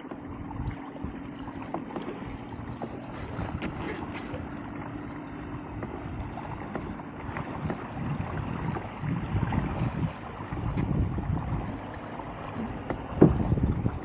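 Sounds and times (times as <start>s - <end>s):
water washing along kayak hull: 0.0s - 14.0s
wind on microphone: 5.6s - 14.0s.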